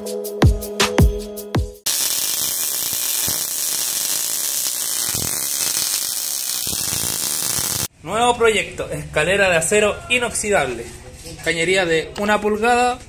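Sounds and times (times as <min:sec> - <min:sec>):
steady buzzing hiss: 0:01.9 - 0:07.9.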